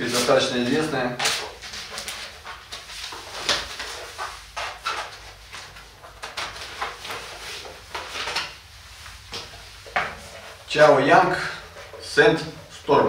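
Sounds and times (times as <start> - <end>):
rustling and scraping of objects: 0.0 - 12.9.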